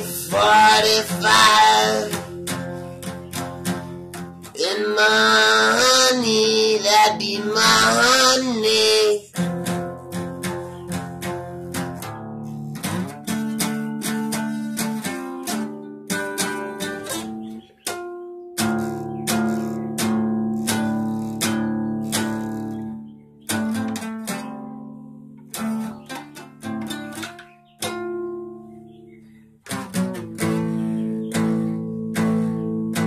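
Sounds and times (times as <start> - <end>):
man singing: 0.0 - 2.5, 4.5 - 9.4
guitar picked and strummed: 0.0 - 33.0.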